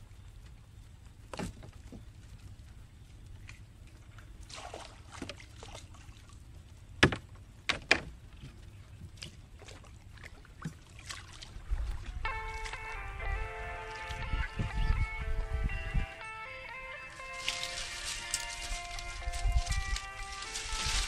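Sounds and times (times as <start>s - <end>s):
water lapping against canoe: 0.0s - 13.0s
gear knocking on wooden hull: 7.0s - 8.6s
steady low rumble: 11.3s - 21.0s.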